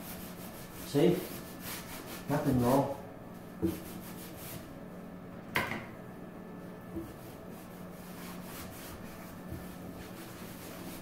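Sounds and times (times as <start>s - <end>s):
cloth wiping wooden cabinet: 0.0s - 3.0s, 3.6s - 4.7s, 7.0s - 11.0s.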